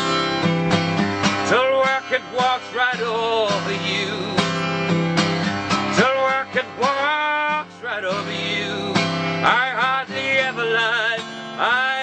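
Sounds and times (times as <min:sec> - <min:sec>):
acoustic guitar strumming: 0:00.0 - 0:12.0
man singing: 0:01.4 - 0:04.5, 0:05.9 - 0:12.0.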